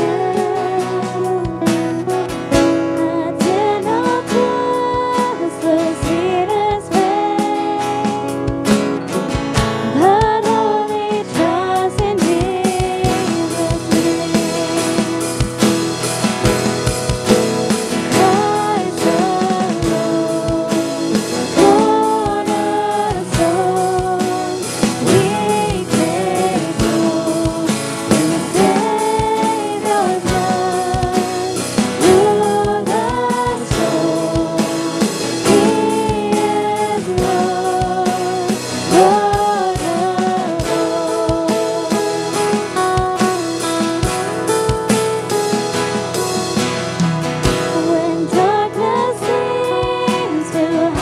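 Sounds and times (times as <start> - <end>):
voices singing a hymn: 0.0 - 2.3, 2.9 - 8.3, 9.9 - 16.7, 17.3 - 43.6, 47.5 - 51.0
drum kit: 0.0 - 51.0
guitar: 0.0 - 51.0.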